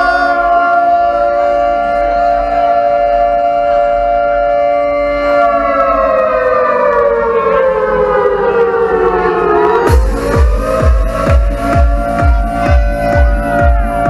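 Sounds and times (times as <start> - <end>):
siren-like synthesizer tone: 0.0 - 14.0
electronic dance beat: 9.1 - 14.0.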